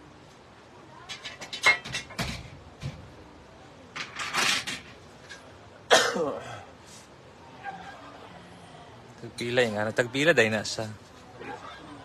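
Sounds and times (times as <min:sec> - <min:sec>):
metal shelving clicks and knocks: 0:01.1 - 0:03.1.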